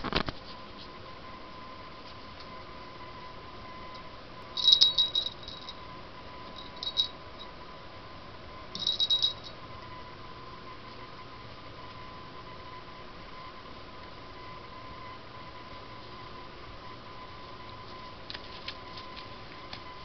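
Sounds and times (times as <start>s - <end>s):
small bell jingling: 4.6s - 5.8s, 6.6s - 7.2s, 8.8s - 9.6s.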